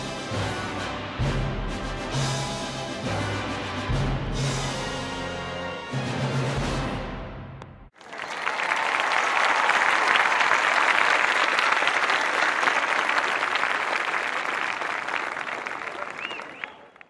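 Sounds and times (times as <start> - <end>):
crowd applauding and cheering: 7.9 - 17.0.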